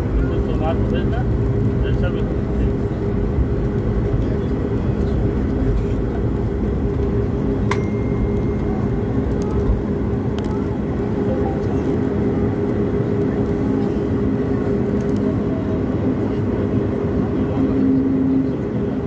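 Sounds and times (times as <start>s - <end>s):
jet engine and cabin drone: 0.0s - 19.0s
low hum of held tones: 4.1s - 16.7s.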